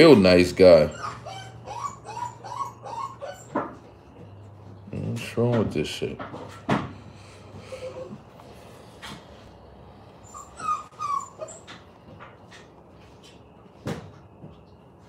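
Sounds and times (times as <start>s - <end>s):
dog whimpering: 0.5s - 4.2s, 7.6s - 8.9s, 10.0s - 12.1s.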